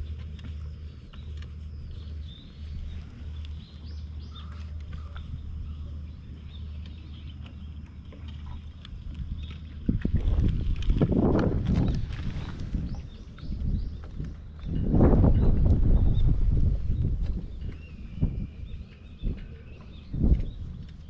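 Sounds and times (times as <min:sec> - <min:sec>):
faint bird calls: 0:02.9 - 0:07.6.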